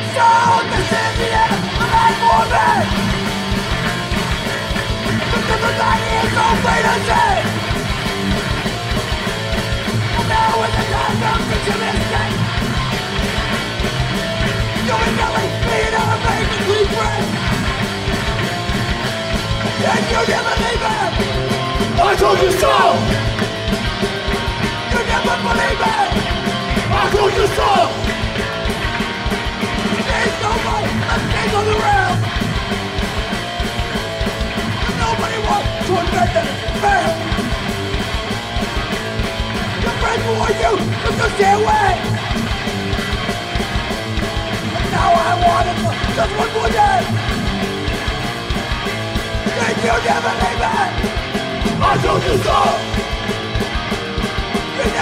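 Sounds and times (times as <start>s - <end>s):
singer yelling: 0.0s - 3.3s, 5.1s - 7.8s, 10.0s - 12.7s, 14.7s - 17.5s, 19.6s - 23.4s, 24.8s - 28.1s, 29.9s - 32.4s, 34.8s - 37.4s, 39.7s - 42.3s, 44.7s - 47.3s, 49.4s - 53.1s, 54.6s - 55.0s
punk band playing live: 0.0s - 55.0s
strummed guitar: 0.0s - 55.0s.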